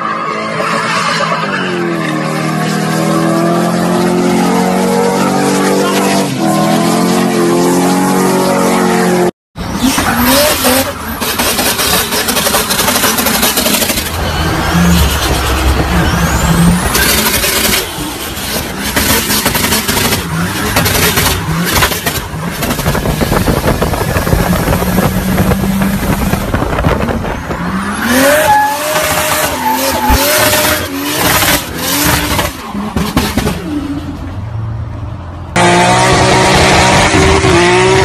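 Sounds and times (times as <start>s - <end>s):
tyres screeching: 9.7s - 23.4s, 24.0s - 34.2s
engine revving hard: 27.6s - 33.6s, 35.5s - 38.0s.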